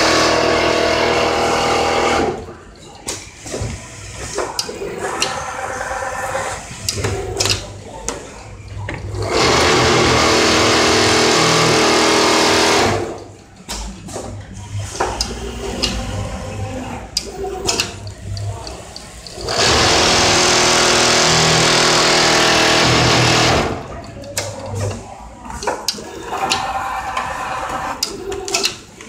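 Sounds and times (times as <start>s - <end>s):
machine clicks and knocks: 6.8s - 16.2s, 17.2s - 29.0s
sewing machine stitching: 9.1s - 13.4s, 14.6s - 25.0s.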